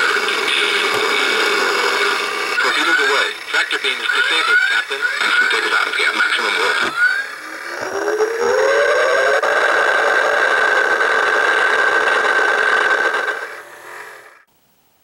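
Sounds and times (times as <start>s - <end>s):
steady hum with high whistle: 0.0s - 9.4s
engine-like tone rising in pitch: 0.0s - 14.5s
electronic warp-out sound effect: 6.9s - 9.5s.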